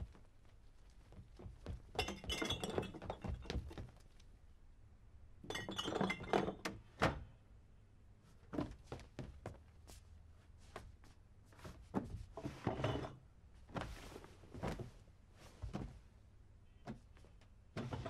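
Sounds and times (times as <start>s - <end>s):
glass bottles clinking together: 2.0s - 3.6s, 5.4s - 6.7s.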